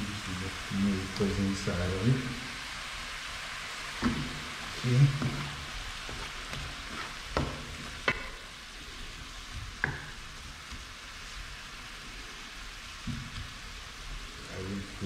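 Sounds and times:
vegetables sizzling in a frying pan: 0.0 - 15.0
spatula knocking against pan: 7.4 - 8.4, 9.8 - 10.2.

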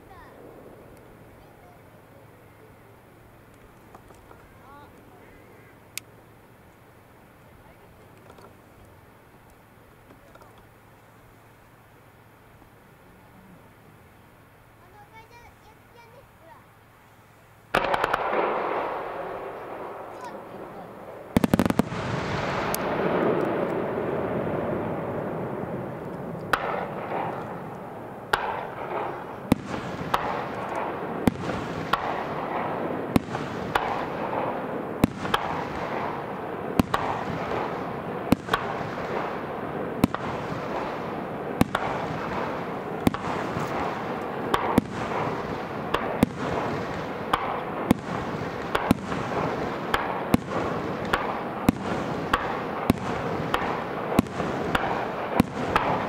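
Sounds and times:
fireworks bangs: 0.0 - 2.6, 17.7 - 56.0
noisy wash: 0.0 - 56.0
fireworks pops: 3.5 - 5.1, 8.0 - 9.0, 10.0 - 10.7, 17.8 - 18.9, 21.3 - 23.9, 25.9 - 39.4, 40.0 - 56.0.

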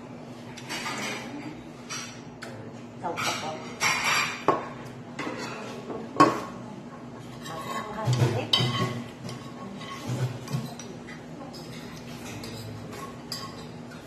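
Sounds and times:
metal spoon scraping ceramic plate: 7.2 - 10.9.

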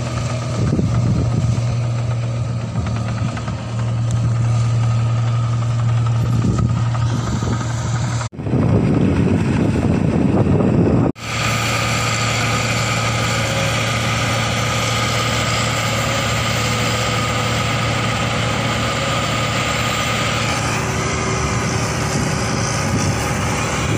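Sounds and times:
harvester engine and machinery: 0.0 - 23.9.

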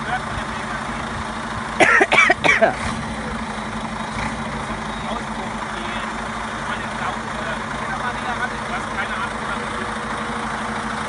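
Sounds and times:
diesel engine idling: 0.0 - 11.0
person coughing or laughing: 1.8 - 2.8.

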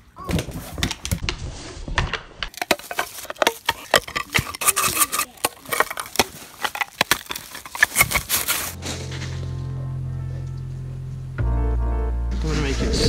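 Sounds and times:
dog crunching and chewing: 2.5 - 8.8.

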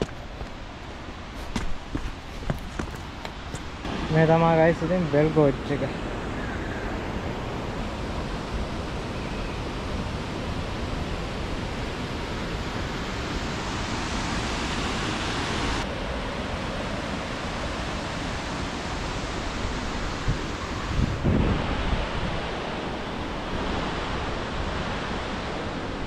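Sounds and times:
waterfall rushing: 3.8 - 7.9.

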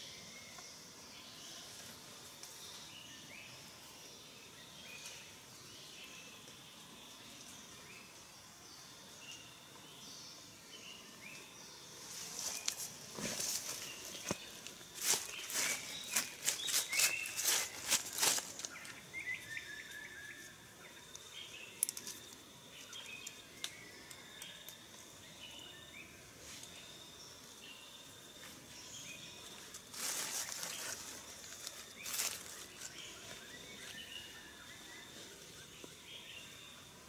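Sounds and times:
birds chirping: 9.3 - 37.0
dry leaves rustling and crackling: 12.3 - 19.0, 29.6 - 33.4.

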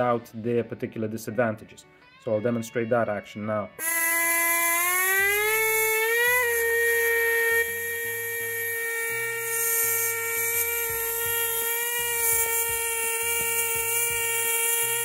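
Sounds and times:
air scribe buzzing: 3.8 - 15.0.

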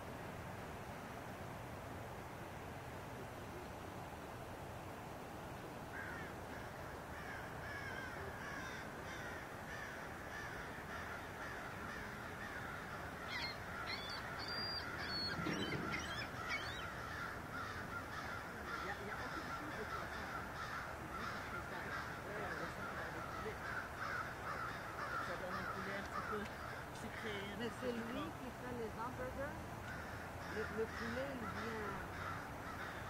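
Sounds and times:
chorus of bird calls: 6.0 - 28.3, 29.2 - 33.0
high whistled bird notes: 13.4 - 16.9.

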